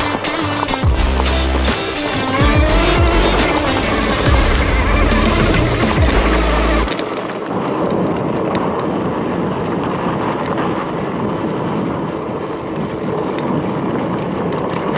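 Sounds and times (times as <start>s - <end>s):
bike tyres rolling on dirt: 0.0s - 14.9s
wind on microphone: 0.0s - 14.9s
loud low rumble: 0.9s - 6.9s.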